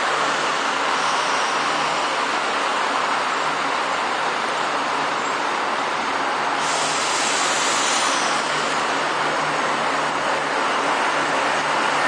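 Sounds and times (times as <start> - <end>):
train engine and wheels rumbling: 0.0 - 12.0
sharp hiss: 6.5 - 9.0.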